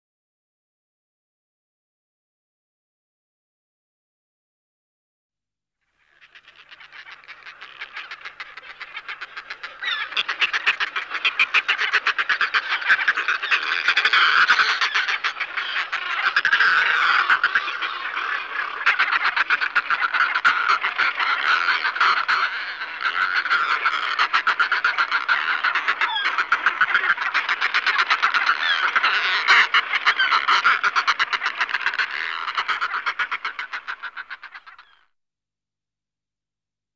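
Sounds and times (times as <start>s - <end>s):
seabird cackling calls: 6.0s - 35.1s.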